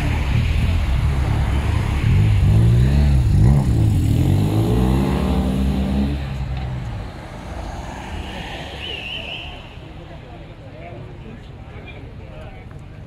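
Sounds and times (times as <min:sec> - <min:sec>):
cars driving past revving: 0:00.0 - 0:09.8.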